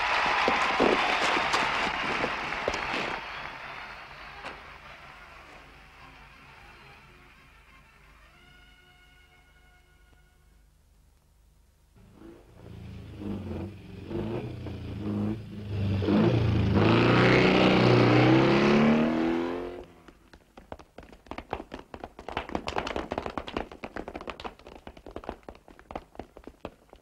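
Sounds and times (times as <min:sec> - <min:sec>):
rapid clicks and taps: 0:20.0 - 0:27.0.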